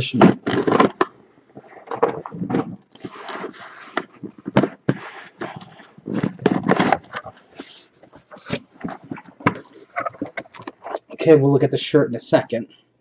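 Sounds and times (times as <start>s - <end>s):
cardboard box being opened: 2.0s - 10.9s.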